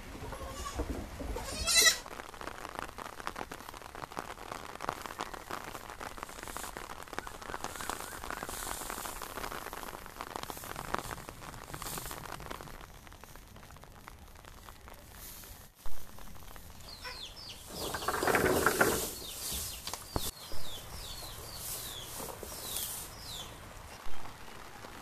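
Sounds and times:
rain pattering: 0:00.0 - 0:25.0
goats bleating: 0:00.3 - 0:02.0
dry straw rustling: 0:06.2 - 0:12.4, 0:16.5 - 0:23.7.

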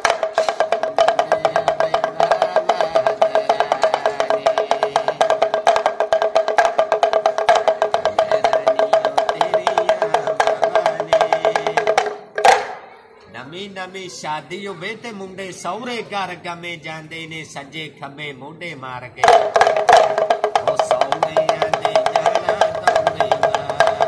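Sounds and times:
pellet drum rattling: 0:00.0 - 0:12.9, 0:19.2 - 0:24.0.

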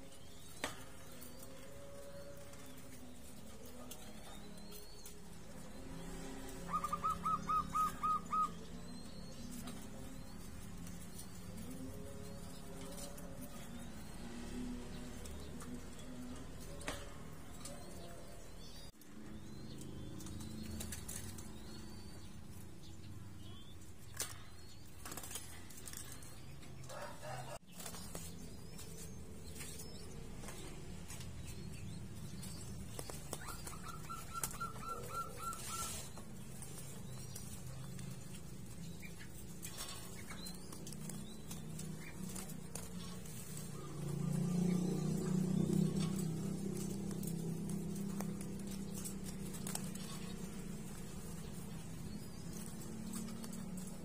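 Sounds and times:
wings fluttering: 0:19.0 - 0:22.7, 0:24.0 - 0:54.0.

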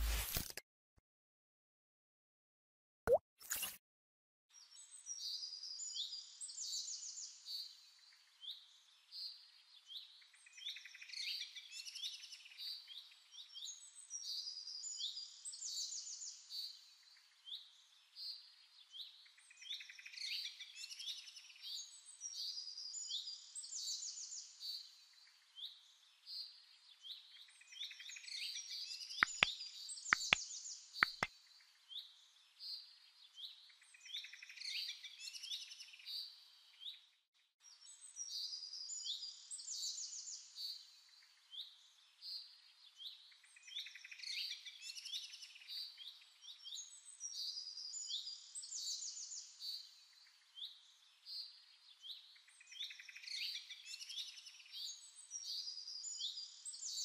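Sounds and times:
small birds chirping and twittering: 0:04.5 - 0:57.0
sharp clicks: 0:29.2 - 0:29.5, 0:30.2 - 0:30.4, 0:31.0 - 0:31.3.

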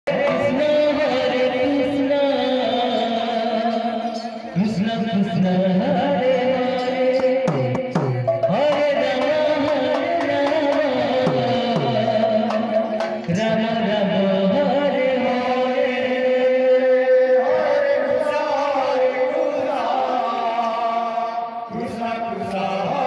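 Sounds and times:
barrel drum beating: 0:07.1 - 0:13.4.

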